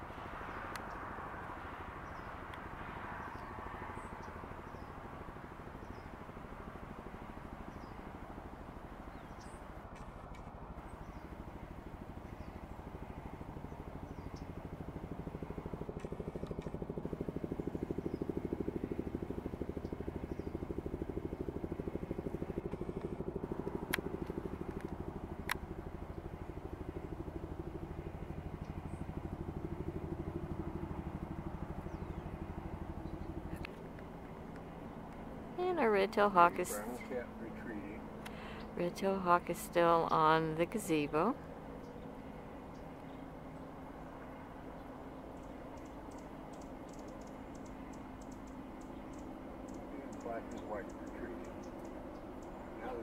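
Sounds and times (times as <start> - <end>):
vehicle engine rumbling: 0.0 - 53.0
faint bird chirps: 44.7 - 53.0.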